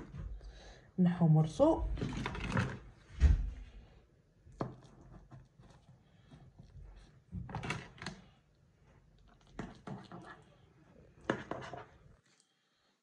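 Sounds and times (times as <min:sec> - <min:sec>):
spatula scraping: 0:09.4 - 0:10.6, 0:11.2 - 0:12.4.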